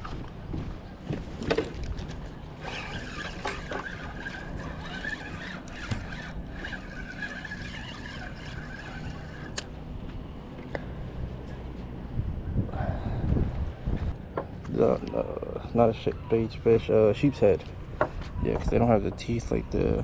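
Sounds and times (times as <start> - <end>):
fishing reel gears whining: 2.6 - 9.8.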